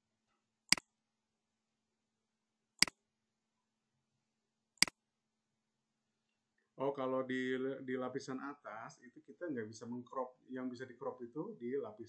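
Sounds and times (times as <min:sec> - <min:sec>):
computer mouse clicks: 0:00.7 - 0:00.9.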